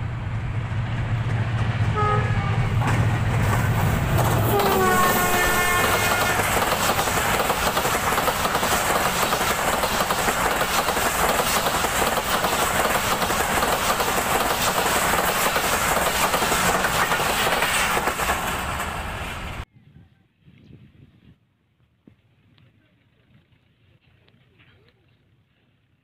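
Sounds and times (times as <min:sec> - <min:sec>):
train passing at speed: 0:00.0 - 0:19.7
wheels clacking on rails: 0:00.6 - 0:19.6
train horn: 0:01.9 - 0:02.8, 0:04.2 - 0:06.6.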